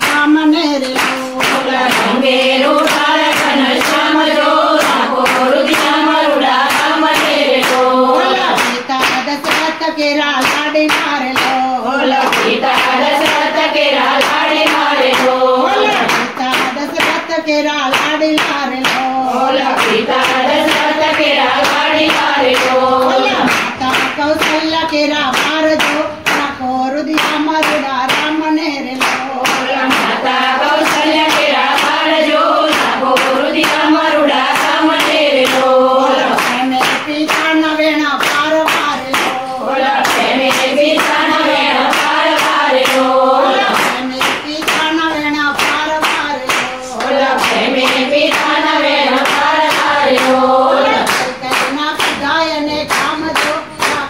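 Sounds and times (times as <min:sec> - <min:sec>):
rhythmic hand clapping: 0:00.0 - 0:54.0
women singing in unison: 0:00.0 - 0:54.0.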